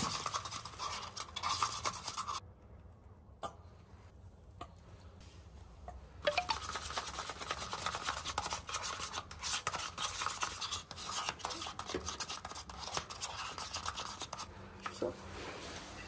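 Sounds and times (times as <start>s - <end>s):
stick stirring paint in cup: 0.0s - 2.4s, 6.2s - 15.3s.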